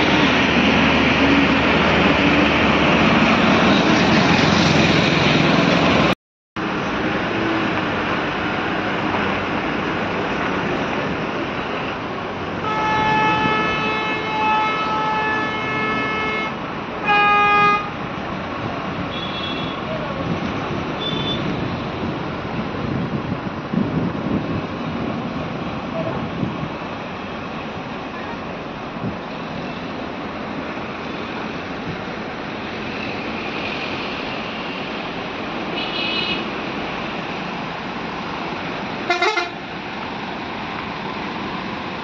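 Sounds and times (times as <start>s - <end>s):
loud rushing noise: 0.0s - 13.8s
road traffic noise: 0.0s - 42.0s
vehicle horn honking: 12.6s - 17.9s, 35.8s - 36.4s, 39.1s - 39.6s.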